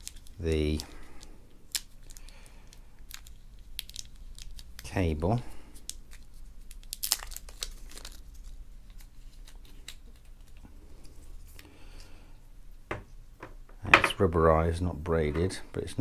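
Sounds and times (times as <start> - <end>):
wrapping crinkling and rustling: 0.0 - 11.7.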